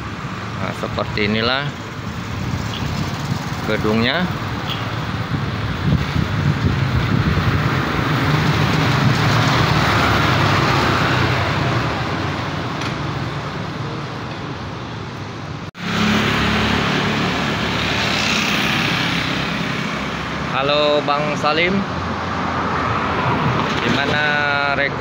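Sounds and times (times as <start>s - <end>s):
street traffic: 0.0s - 25.0s
motor scooters passing: 2.1s - 13.2s, 15.8s - 20.5s.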